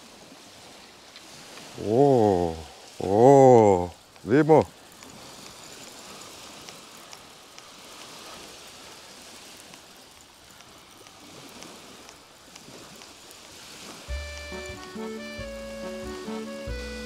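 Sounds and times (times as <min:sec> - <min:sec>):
waves washing on sandy shore: 0:00.0 - 0:17.0
background music with bass: 0:14.1 - 0:17.0.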